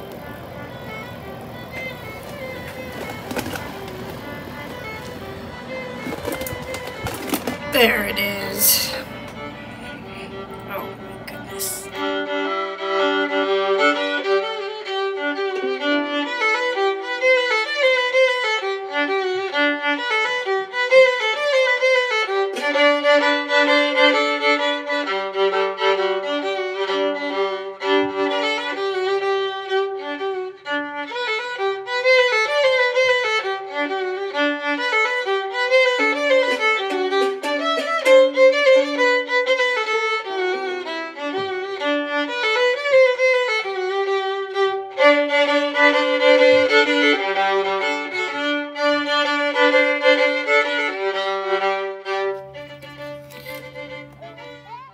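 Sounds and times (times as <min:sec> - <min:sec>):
low accompanying notes: 0:00.0 - 0:14.0, 0:45.4 - 0:54.9
violin melody: 0:00.0 - 0:54.9.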